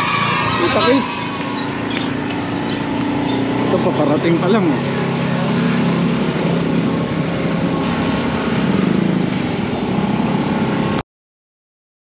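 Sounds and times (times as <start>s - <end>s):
vehicle engine running: 0.0s - 11.0s.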